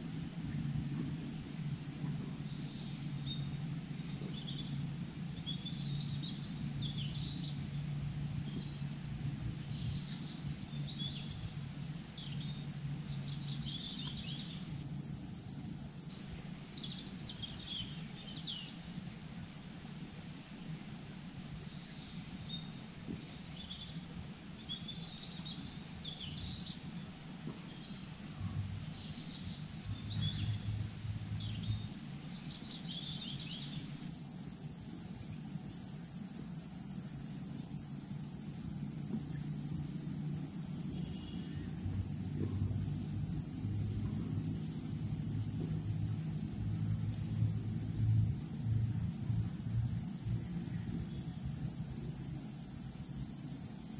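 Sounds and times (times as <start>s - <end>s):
low hum: 0.0s - 34.1s
high insect drone: 0.0s - 53.9s
birds chirping: 21.6s - 34.1s.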